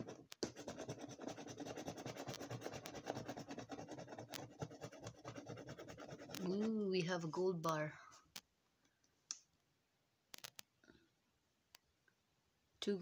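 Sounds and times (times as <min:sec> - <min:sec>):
coin scratching a scratchcard: 0:00.0 - 0:06.8.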